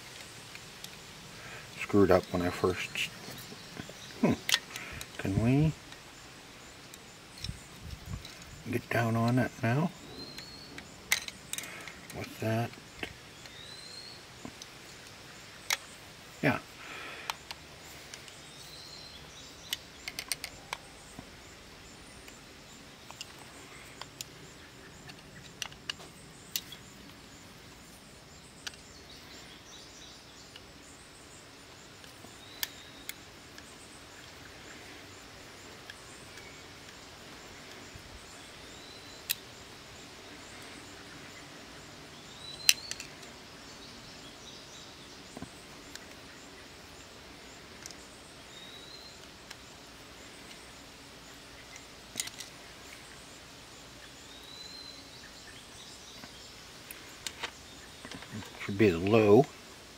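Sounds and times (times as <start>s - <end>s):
faint background hiss: 0.0s - 59.9s
small metal parts clicking: 10.3s - 12.4s, 19.7s - 20.8s, 51.7s - 52.6s.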